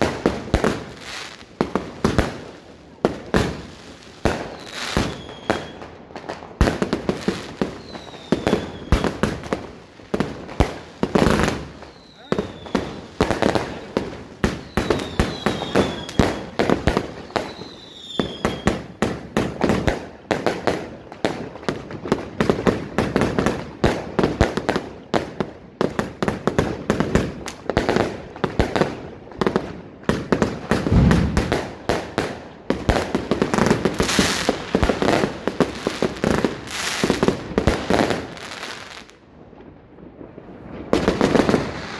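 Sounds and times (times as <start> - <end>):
firework bangs and crackles: 0.0 - 41.9
falling firework whistles: 4.4 - 5.9, 7.6 - 9.2, 11.3 - 19.0, 30.7 - 31.8.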